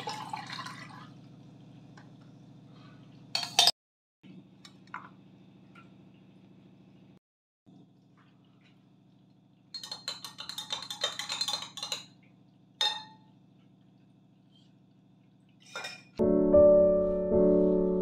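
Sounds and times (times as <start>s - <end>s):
metal spoon clinking in glass: 3.4s - 3.7s, 9.8s - 12.1s
piano music: 16.2s - 18.0s.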